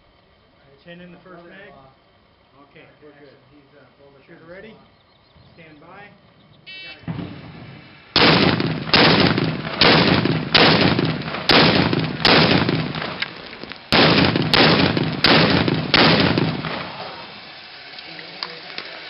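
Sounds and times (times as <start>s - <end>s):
gunshot echo: 7.0s - 17.2s
rifle firing single shots: 8.2s - 16.9s.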